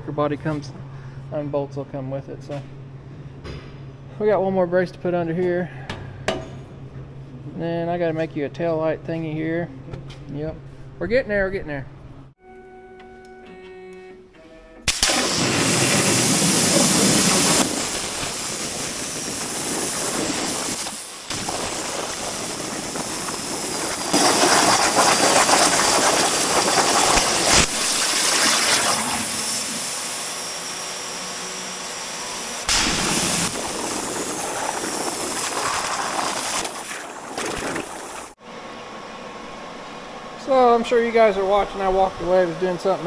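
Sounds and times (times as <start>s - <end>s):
plasma cutter arc hissing: 14.9s - 38.3s.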